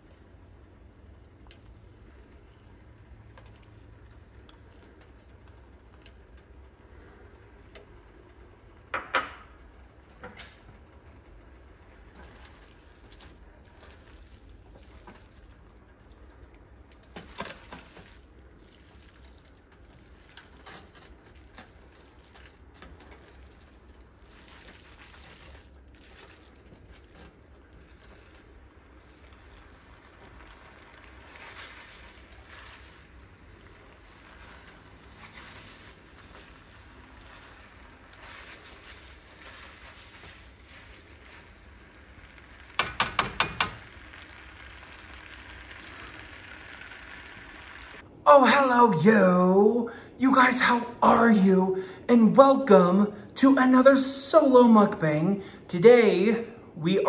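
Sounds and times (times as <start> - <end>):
stirring noodles in a pan: 0.0 - 8.9, 9.6 - 48.0
utensils clattering against pan: 42.8 - 43.9.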